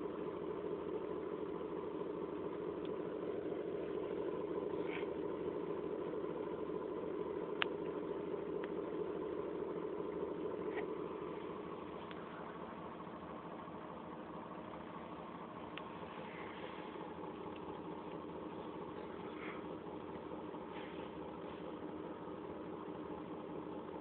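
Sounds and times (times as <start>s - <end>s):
steady mechanical hum: 0.0s - 24.0s
faint ticks: 2.8s - 3.0s, 12.0s - 12.3s, 17.4s - 18.3s.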